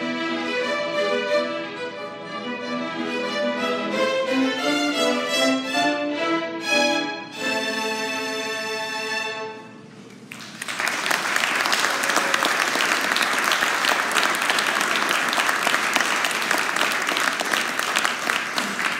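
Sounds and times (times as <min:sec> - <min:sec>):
violin ensemble chord: 0:00.0 - 0:10.0
audience applause: 0:10.3 - 0:18.9.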